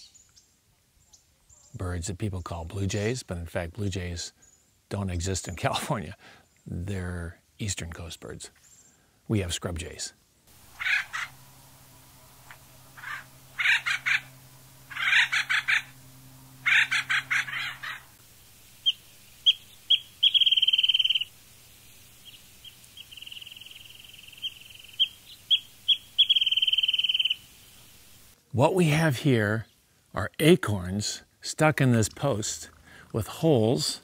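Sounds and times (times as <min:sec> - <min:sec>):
harsh raspy bird calls: 0:10.5 - 0:21.4, 0:22.0 - 0:27.6
bird song with rapid trill: 0:10.7 - 0:18.2, 0:18.8 - 0:21.3, 0:22.2 - 0:27.5.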